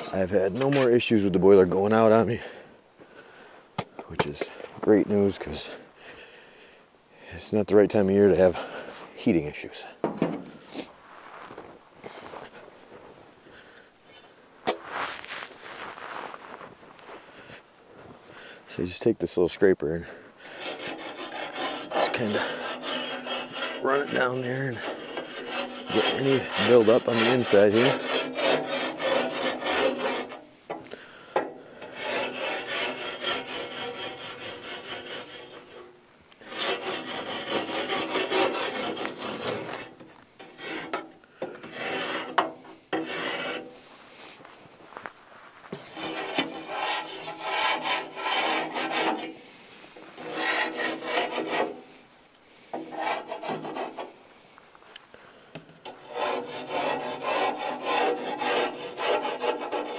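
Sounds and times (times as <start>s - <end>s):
hand scraper rasping on metal: 0.0s - 0.9s, 20.4s - 43.9s, 45.7s - 52.0s, 52.6s - 54.2s, 55.8s - 59.9s.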